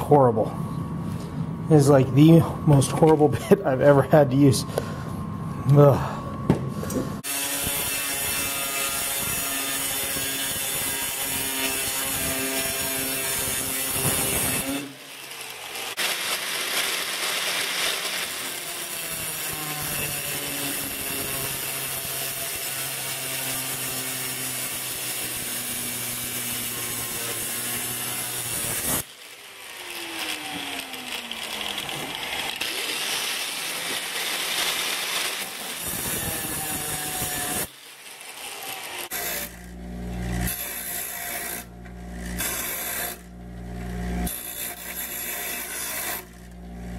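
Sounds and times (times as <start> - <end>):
angle grinder cutting steel: 7.2 - 46.9.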